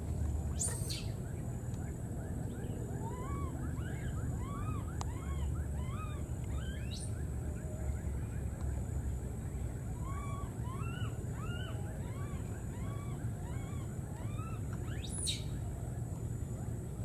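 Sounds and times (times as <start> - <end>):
low wind rumble: 0.0 - 17.0
chirping animal calls: 0.5 - 1.2.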